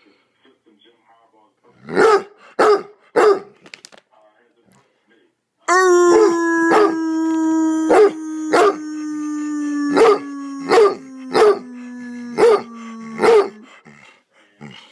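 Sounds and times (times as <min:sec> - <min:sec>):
hound dog barking: 0:01.9 - 0:03.6, 0:10.0 - 0:13.7
man howling: 0:05.7 - 0:13.8.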